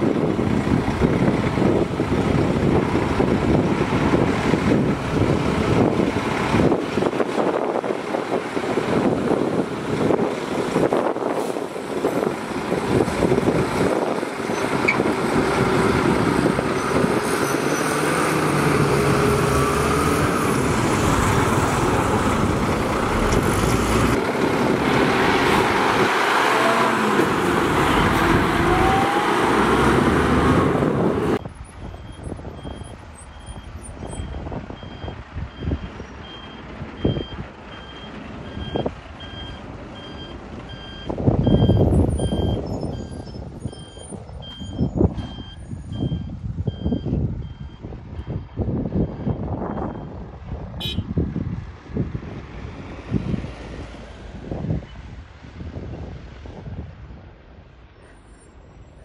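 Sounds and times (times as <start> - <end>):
dump truck engine running: 0.0 - 50.6
truck reverse alarm beeping: 31.4 - 50.2.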